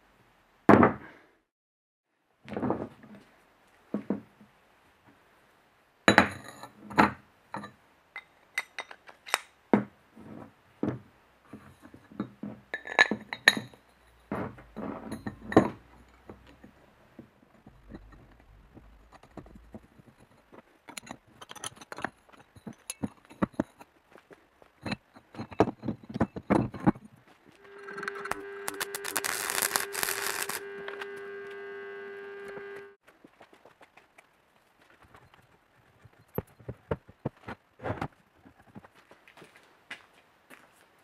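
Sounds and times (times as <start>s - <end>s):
steel parts clinking: 7.6s - 9.5s, 27.7s - 30.6s.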